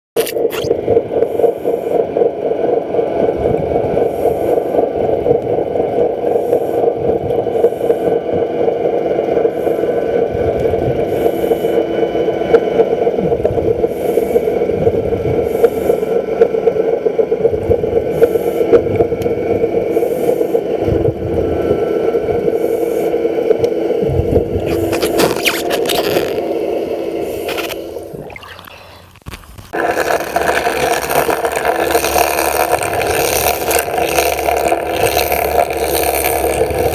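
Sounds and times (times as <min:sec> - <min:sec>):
bubbling and fizzing: 0:00.2 - 0:01.2, 0:24.2 - 0:26.4, 0:27.2 - 0:36.9
underwater mechanical drone: 0:00.2 - 0:36.9.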